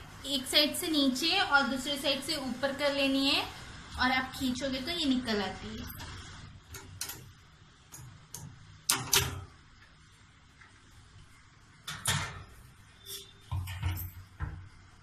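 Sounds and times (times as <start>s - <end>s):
metallic clicks and clanks: 6.7s - 9.5s.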